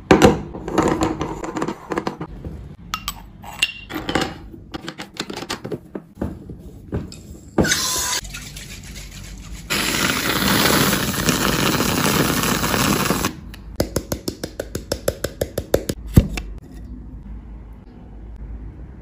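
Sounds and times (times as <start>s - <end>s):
whipped cream dispenser hissing: 9.7s - 13.3s.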